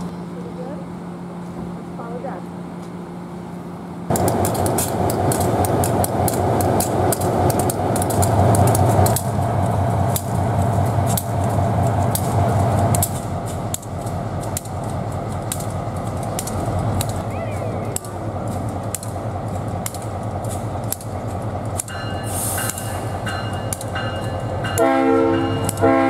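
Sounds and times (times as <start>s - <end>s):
sharp ticks and clicks: 4.1s - 25.9s
diesel engine idling drone: 11.5s - 22.6s.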